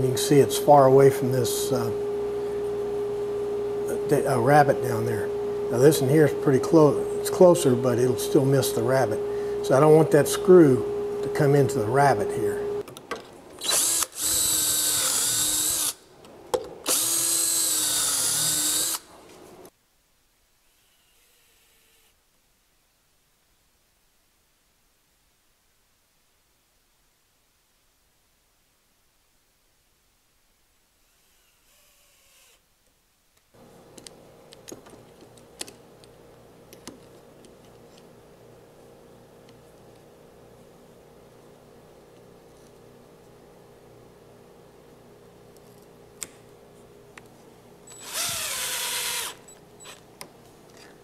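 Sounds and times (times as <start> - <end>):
cordless drill running: 13.6 - 16.0, 16.8 - 19.1, 31.0 - 32.6, 47.9 - 50.1.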